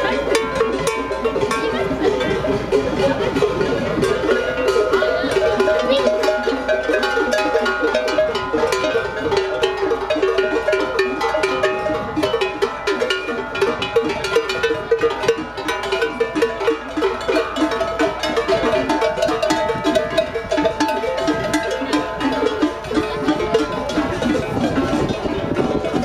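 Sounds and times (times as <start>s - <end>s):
cowbells clanking: 0.0s - 26.0s.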